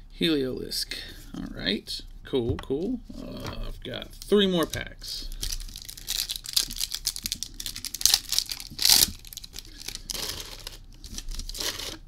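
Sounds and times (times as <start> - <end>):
foil wrapper tearing and crinkling: 5.3 - 12.0.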